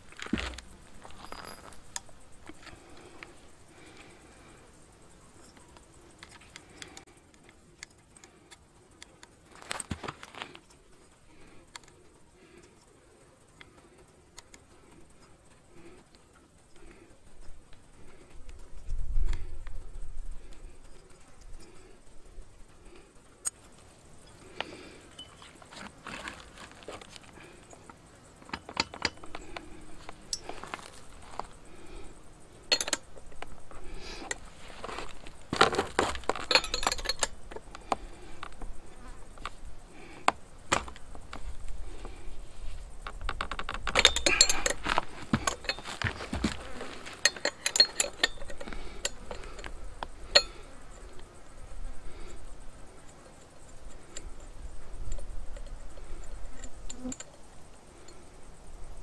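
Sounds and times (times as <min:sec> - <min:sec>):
metal tools clinking: 0:00.0 - 0:04.0, 0:24.2 - 0:31.6, 0:32.6 - 0:38.0, 0:43.2 - 0:50.7
metal tool clinks: 0:01.0 - 0:02.0, 0:25.1 - 0:25.6, 0:32.7 - 0:33.1, 0:36.0 - 0:37.4, 0:43.9 - 0:49.7, 0:50.3 - 0:50.7.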